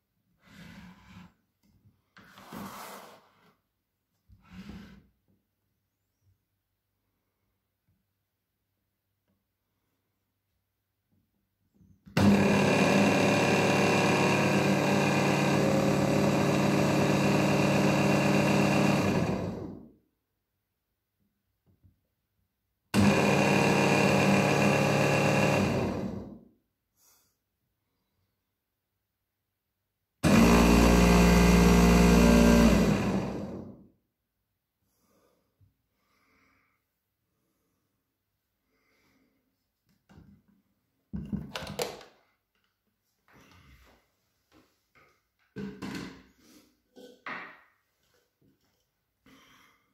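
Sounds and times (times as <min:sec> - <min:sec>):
hand blender motor running: 0:12.2 - 0:19.8, 0:23.0 - 0:26.3, 0:30.2 - 0:33.7.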